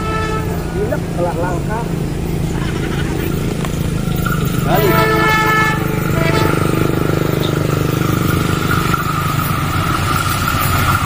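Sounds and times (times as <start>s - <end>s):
train horn blast: 0.0s - 0.9s, 4.5s - 9.3s
high whine: 0.0s - 11.0s
locomotive engine drone: 0.0s - 11.0s.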